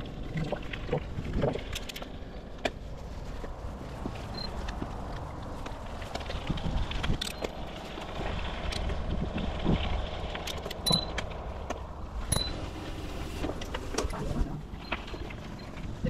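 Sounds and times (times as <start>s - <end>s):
bike clicks and rattles: 0.0s - 12.6s
bicycle tyre noise: 0.0s - 16.0s
wind rumble on microphone: 0.0s - 16.0s.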